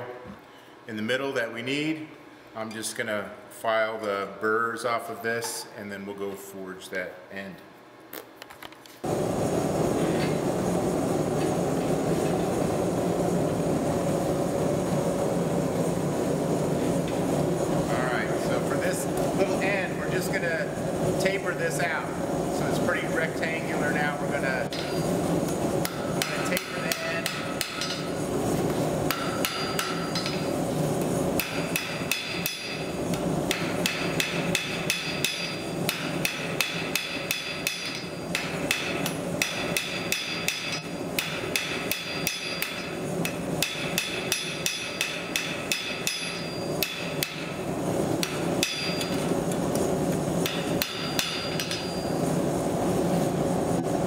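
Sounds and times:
gas forge running: 0:09.0 - 0:54.0
hammer striking steel on anvil: 0:24.7 - 0:25.1, 0:25.8 - 0:28.1, 0:29.1 - 0:30.5, 0:31.4 - 0:32.9, 0:33.5 - 0:47.6, 0:48.2 - 0:49.3, 0:50.4 - 0:52.2
anvil ringing: 0:29.1 - 0:30.5, 0:31.4 - 0:32.9, 0:33.5 - 0:42.9, 0:43.6 - 0:47.5, 0:48.2 - 0:49.3, 0:50.4 - 0:52.2.

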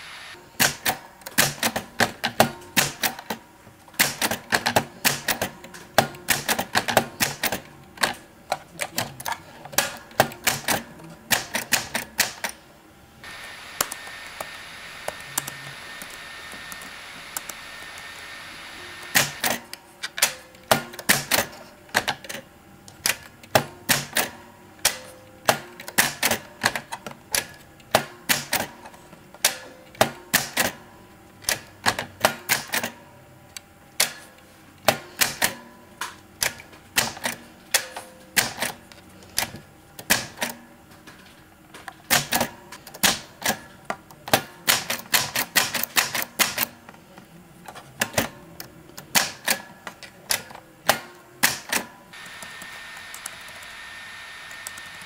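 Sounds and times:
manual typewriter keystrokes: 0:04.0 - 0:08.2, 0:08.8 - 0:12.6, 0:19.0 - 0:22.4, 0:23.0 - 0:28.7, 0:31.4 - 0:33.0, 0:42.1 - 0:46.7.

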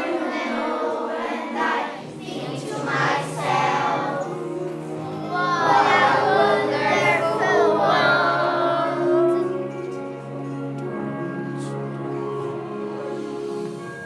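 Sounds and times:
children singing: 0:00.0 - 0:10.0
instrumental accompaniment: 0:00.0 - 0:14.0.

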